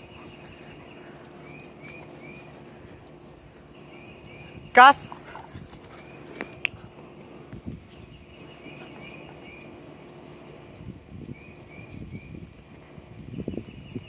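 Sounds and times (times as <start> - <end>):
bird chirping: 0.0 - 7.0, 7.9 - 9.9
faint outdoor background: 0.0 - 14.0.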